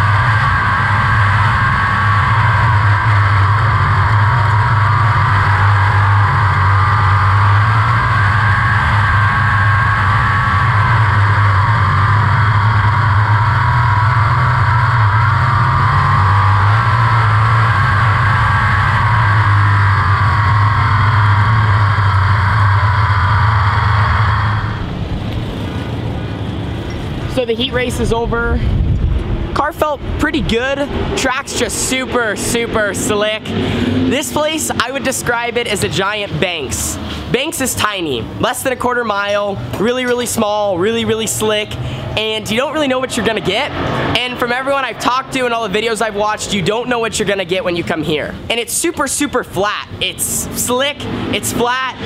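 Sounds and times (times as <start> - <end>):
race car engine droning: 0.0 - 52.0.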